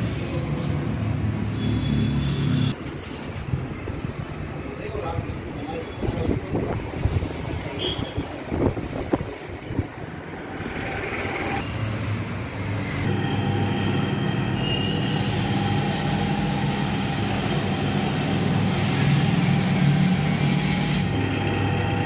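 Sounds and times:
mechanical drone with low hum: 0:12.4 - 0:22.0.

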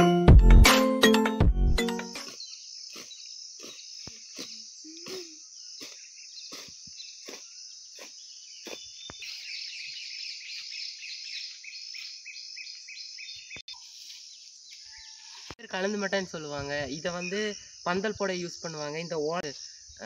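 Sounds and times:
blade swishing through grass: 0:02.2 - 0:09.4
high insect drone: 0:02.2 - 0:13.0, 0:15.6 - 0:20.0.

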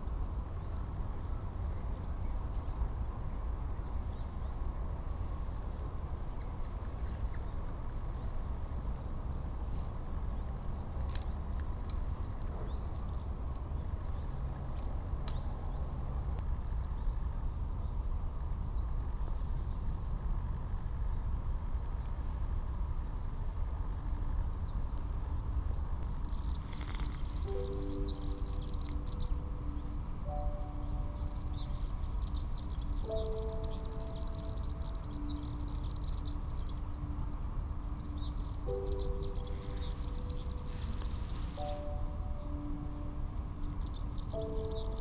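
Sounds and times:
small birds chirping: 0:22.0 - 0:45.0
steady low rumble: 0:22.4 - 0:45.0.

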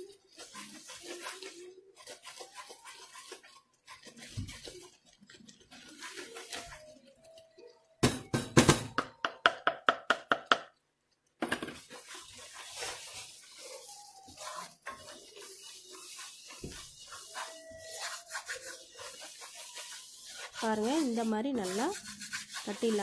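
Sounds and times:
spatula scraping metal pan: 0:00.0 - 0:07.1, 0:11.7 - 0:23.0.

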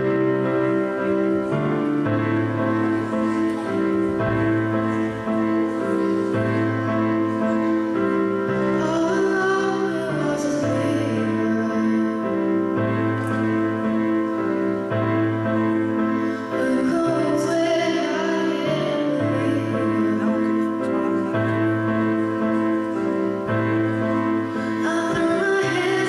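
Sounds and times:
slow piano chords: 0:00.0 - 0:26.0
girl singing into microphone: 0:08.6 - 0:12.2, 0:16.3 - 0:21.3, 0:24.6 - 0:26.0.

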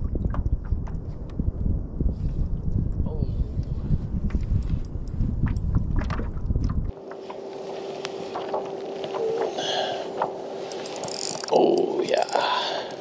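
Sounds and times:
wind buffeting microphone: 0:00.0 - 0:07.0
water lapping at kayak hull: 0:05.7 - 0:11.6
faint steady hum: 0:06.9 - 0:13.0.

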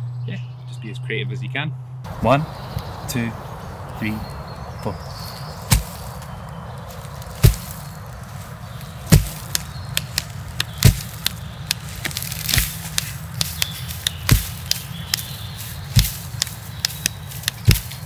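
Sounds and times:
branch swishing leaves: 0:05.2 - 0:18.0
hands thumping tree stump: 0:05.2 - 0:18.0
bark clacking against hand: 0:16.0 - 0:18.0.

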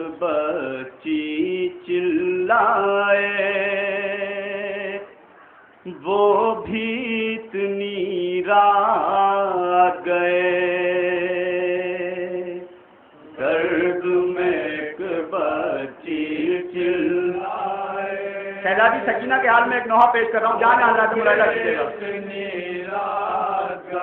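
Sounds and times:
man chanting a lament: 0:13.4 - 0:24.0.

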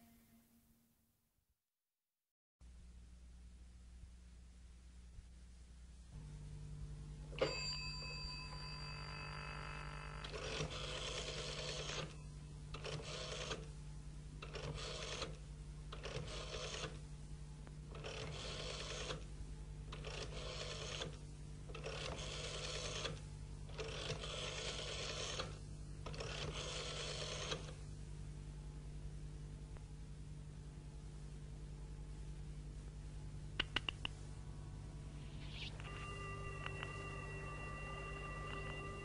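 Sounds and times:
steady low hum: 0:02.6 - 0:20.2, 0:20.8 - 0:39.0
bell-like ringing tone: 0:07.4 - 0:10.2, 0:34.6 - 0:39.0.

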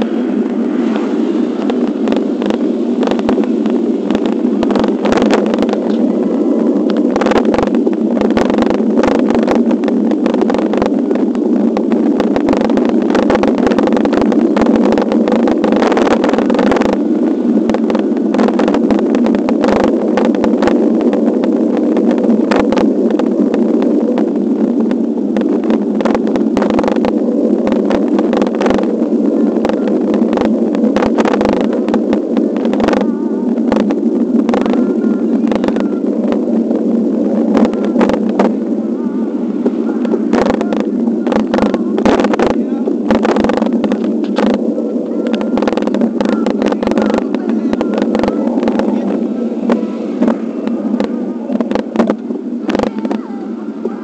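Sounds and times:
wind rush on bicycle camera: 0:00.0 - 0:54.0
clicks and rattles from road bumps: 0:40.1 - 0:44.6.

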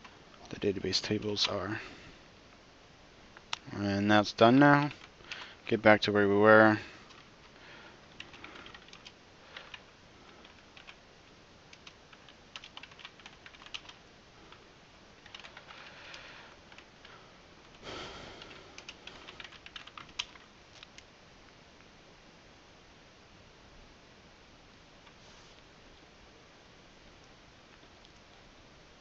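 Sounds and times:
soft rush of noise: 0:00.0 - 0:29.0.

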